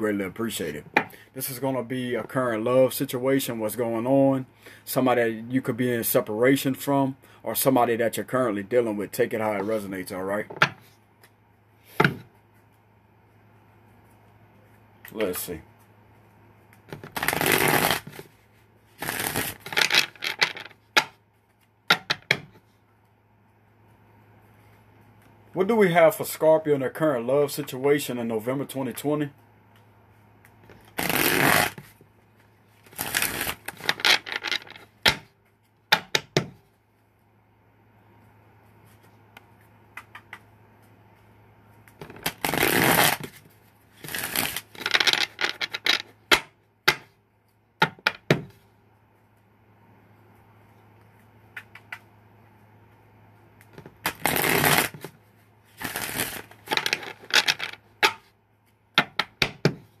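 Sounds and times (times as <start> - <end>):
cards shuffling: 16.7 - 21.7, 30.5 - 32.0, 32.8 - 35.2, 39.9 - 46.1, 53.7 - 58.2
cards clicking and tapping: 39.9 - 40.5.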